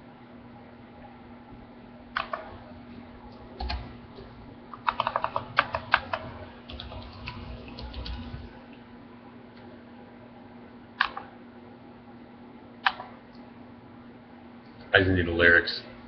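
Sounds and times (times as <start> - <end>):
computer keyboard typing: 2.2 - 2.5, 3.3 - 8.6.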